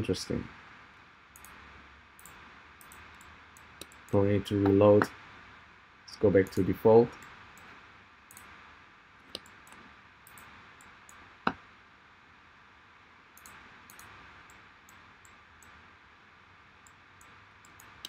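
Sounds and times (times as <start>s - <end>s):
low steady hiss: 0.0s - 18.0s
computer mouse clicks: 1.4s - 1.6s, 2.2s - 4.8s, 7.2s - 8.5s, 9.3s - 11.6s, 13.4s - 15.8s, 16.8s - 18.0s
faint ticks: 13.4s - 15.8s.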